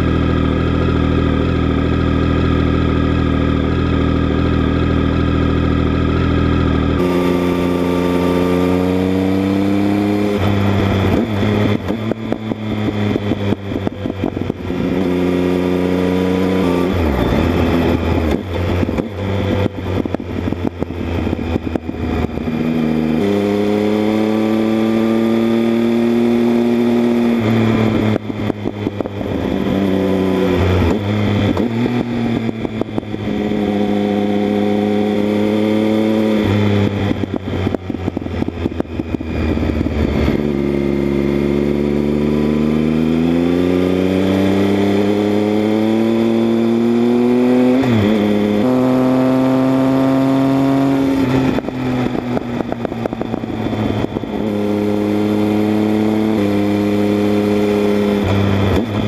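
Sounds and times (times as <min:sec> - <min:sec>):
motorcycle exhaust revving: 0:00.0 - 0:59.0.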